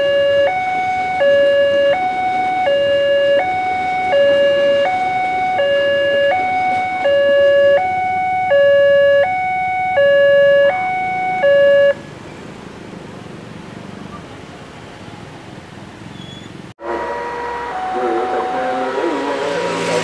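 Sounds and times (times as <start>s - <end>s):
passing train rumble: 0.0s - 8.5s, 11.9s - 20.0s
level crossing two-tone alarm: 0.0s - 12.0s, 16.8s - 20.0s.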